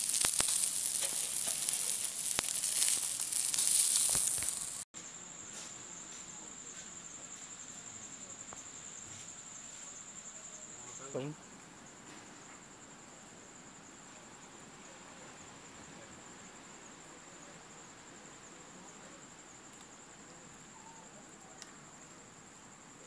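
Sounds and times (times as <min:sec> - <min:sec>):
fish sizzling on a grill: 0:00.0 - 0:06.0
crickets chirring: 0:00.0 - 0:23.0.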